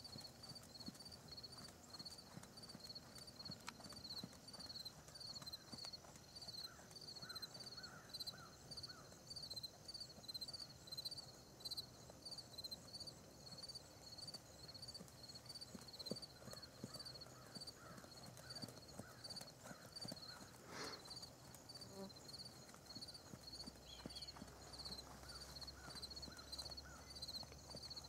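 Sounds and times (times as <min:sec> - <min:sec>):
horse hoofbeats on sand: 0:00.0 - 0:07.5, 0:14.8 - 0:28.0.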